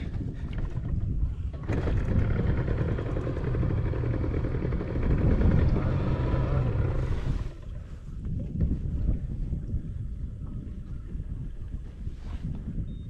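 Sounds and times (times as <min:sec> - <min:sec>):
outboard motor running: 0:00.0 - 0:08.3.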